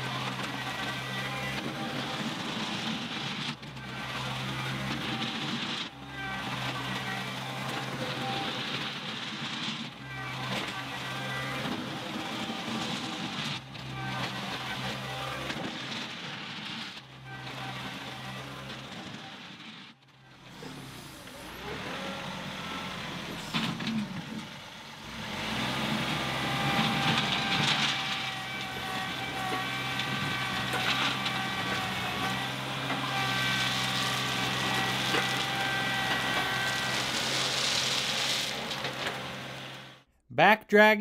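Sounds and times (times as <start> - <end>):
tractor whining: 0.0 - 40.6
bucket scraping crushed stone: 33.4 - 39.1.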